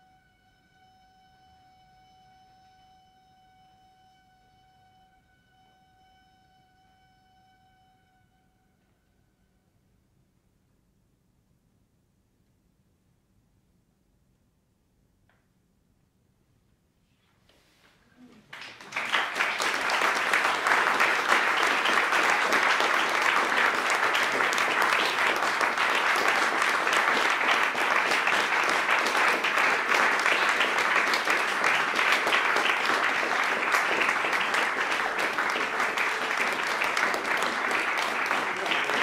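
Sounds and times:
audience applause: 18.3s - 39.0s.

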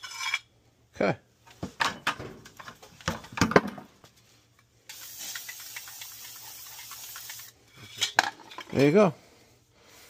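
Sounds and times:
aerosol spray hiss: 4.9s - 7.6s.

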